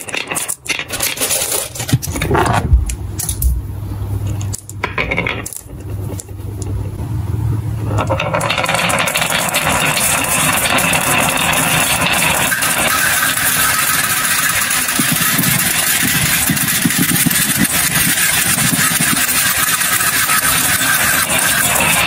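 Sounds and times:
marbles rolling on wooden track: 0.0 - 2.6, 4.4 - 6.9, 7.8 - 22.0
marbles clicking together: 8.0 - 22.0.

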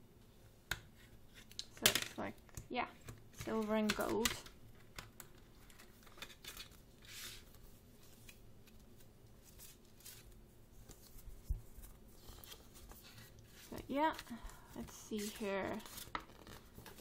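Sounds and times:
paper sliding and rustling: 7.0 - 8.4, 9.4 - 13.8.

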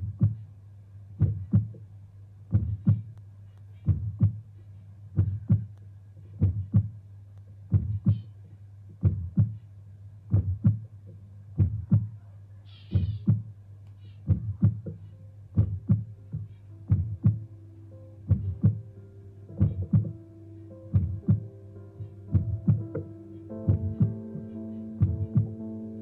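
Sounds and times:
slow heartbeat thumps: 0.0 - 0.5, 1.2 - 1.8, 2.5 - 3.2, 3.8 - 4.5, 5.1 - 7.0, 7.7 - 8.3, 8.9 - 9.6, 10.3 - 12.2, 12.9 - 13.6, 14.3 - 17.5, 18.3 - 18.9, 19.5 - 20.2, 20.8 - 25.7
steady low hum: 0.0 - 26.0.

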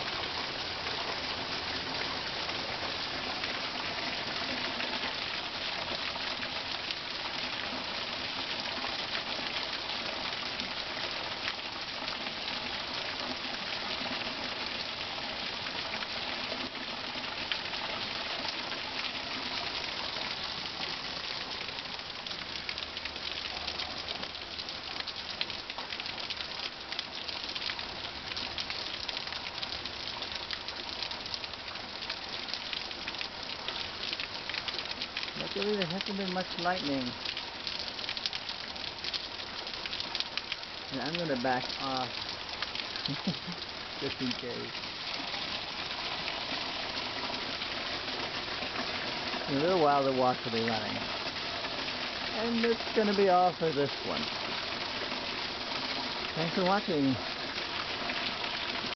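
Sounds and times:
heavy rain falling: 0.0 - 58.9.

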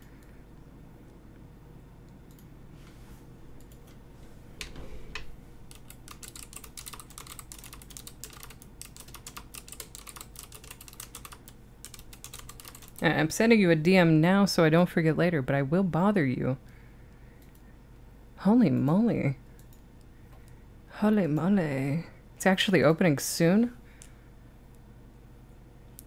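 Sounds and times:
keyboard typing: 5.7 - 13.1.

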